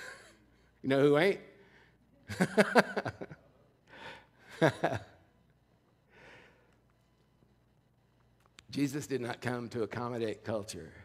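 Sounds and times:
man laughing: 2.3 - 3.5, 4.5 - 5.2.

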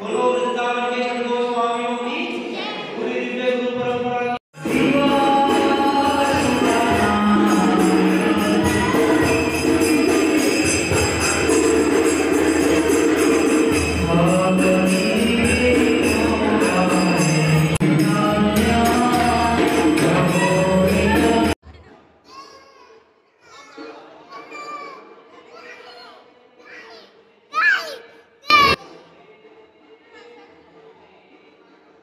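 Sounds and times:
devotional song with singing: 0.0 - 21.6
jingling bells or tambourine: 4.6 - 21.6.

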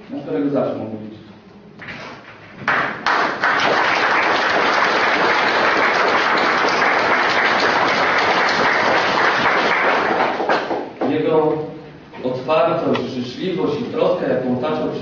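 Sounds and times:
audience applauding: 2.6 - 10.9.

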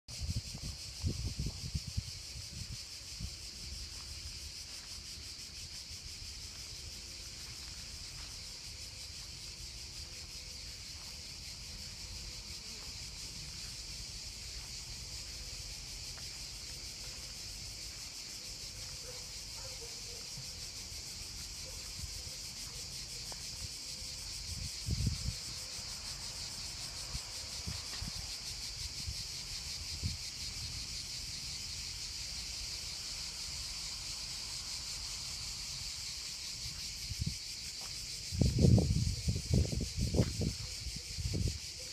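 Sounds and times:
wind rumble on microphone: 0.1 - 3.7, 24.4 - 25.6, 38.2 - 41.7
insects buzzing: 0.1 - 41.9.

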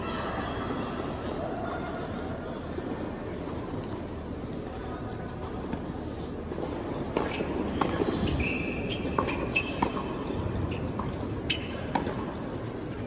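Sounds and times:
shoes squeaking on court: 5.4 - 13.0
ball bouncing: 7.1 - 12.4
racket striking ball: 8.9 - 12.3.

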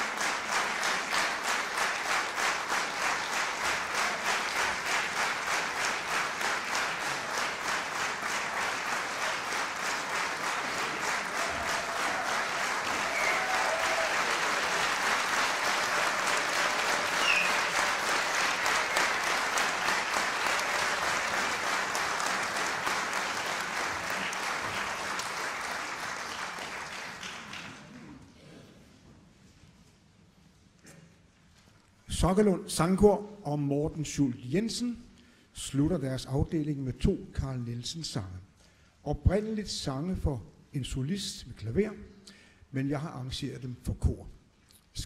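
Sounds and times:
rhythmic applause: 0.0 - 28.2.

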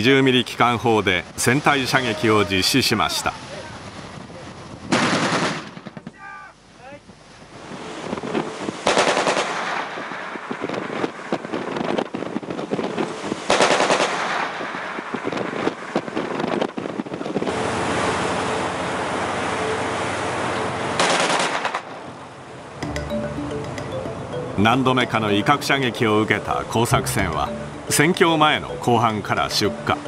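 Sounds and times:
wind and sea noise: 0.0 - 30.0
machine cannon firing bursts: 4.9 - 6.0, 8.8 - 11.6, 13.5 - 16.2.

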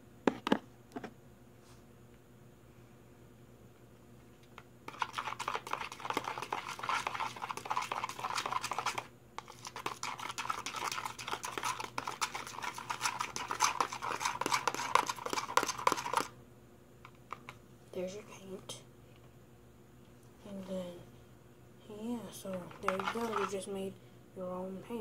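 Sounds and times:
paint being mixed by hand: 4.9 - 16.3, 22.4 - 23.8.

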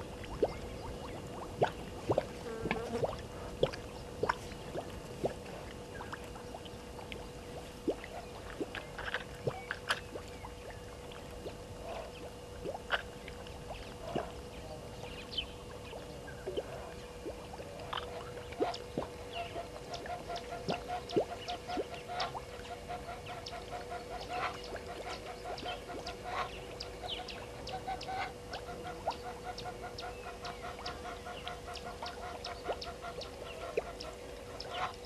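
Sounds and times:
faint steady hum: 0.0 - 35.0
geese calling: 18.6 - 35.0.

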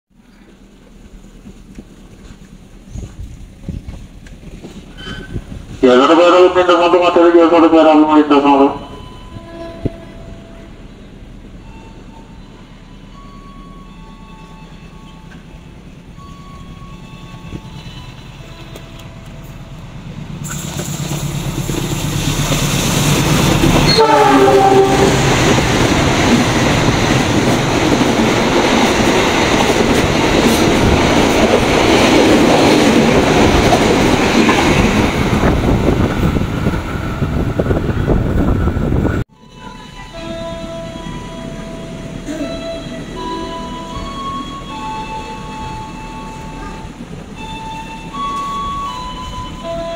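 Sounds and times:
diesel locomotive passing: 0.1 - 49.9
wheels rushing on rail: 0.2 - 6.6, 8.7 - 49.9
train horn: 5.9 - 10.8, 16.5 - 19.6, 23.8 - 25.6, 39.4 - 49.9.

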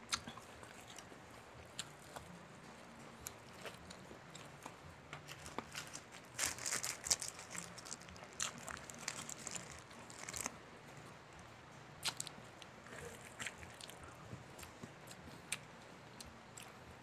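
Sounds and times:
fried chicken crunching: 3.4 - 10.6.

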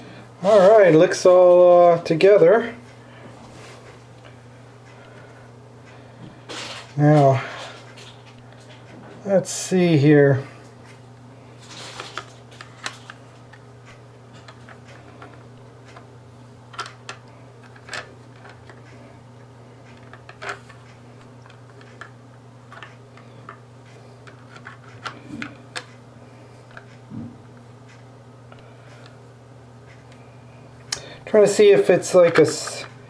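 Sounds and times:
steady low hum: 0.0 - 33.0
small parts clicking and tapping: 24.2 - 25.9.

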